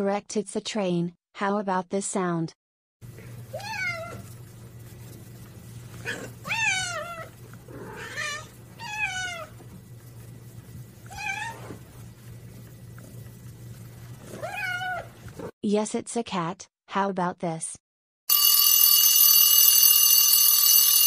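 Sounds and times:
steady low hum: 3.0s - 15.5s
cat meowing: 3.5s - 4.3s, 6.0s - 9.6s, 11.1s - 11.9s, 14.2s - 15.2s.

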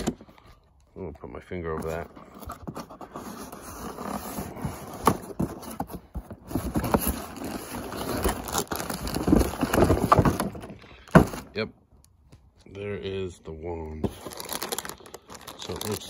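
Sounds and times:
cardboard scraping and rubbing: 1.6s - 11.5s.

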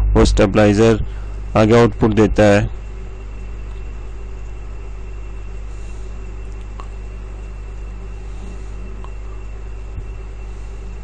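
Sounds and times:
faint high whine: 0.0s - 11.0s
low electrical hum: 0.0s - 11.0s
faint ticks: 6.0s - 10.2s.

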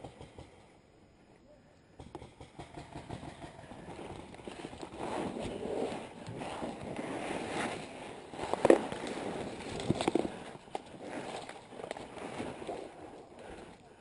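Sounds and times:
brush rustling against clothing: 3.9s - 13.7s.

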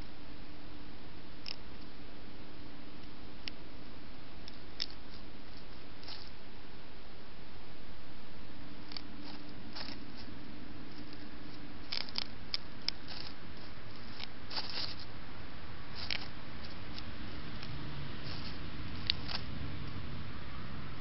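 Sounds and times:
background hiss: 0.0s - 21.0s
mouse rustling in dry leaves: 4.6s - 6.5s, 8.6s - 21.0s.

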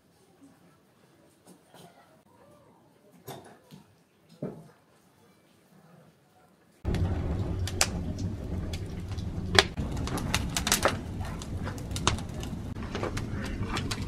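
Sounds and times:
fire crackling and popping: 6.8s - 14.0s
fire rumbling: 6.8s - 14.0s.

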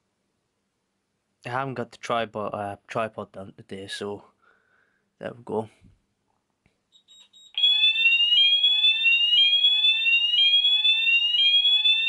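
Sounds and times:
fire alarm rising sweep tone: 7.0s - 12.0s.

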